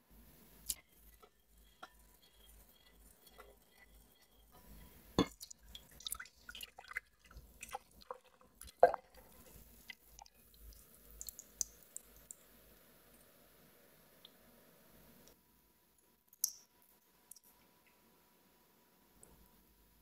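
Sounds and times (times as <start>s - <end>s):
liquid pouring through strainer: 5.2s - 12.4s.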